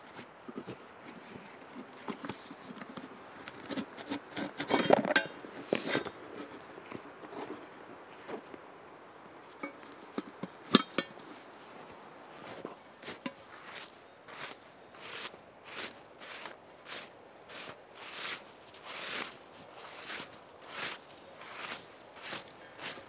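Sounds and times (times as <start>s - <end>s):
clattering and scraping: 2.0s - 6.6s
rustling: 9.2s - 23.0s.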